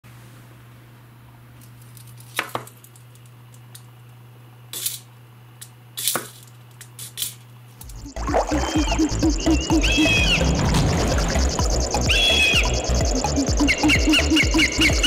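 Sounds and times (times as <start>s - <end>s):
steady low hum: 2.8s - 15.0s
music: 7.8s - 15.0s.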